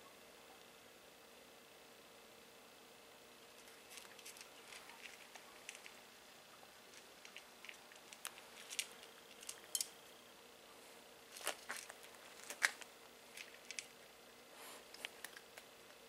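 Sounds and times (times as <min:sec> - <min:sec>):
cat crunching dry kibble: 0:03.5 - 0:06.0, 0:06.8 - 0:10.0, 0:11.3 - 0:14.0, 0:14.8 - 0:16.0.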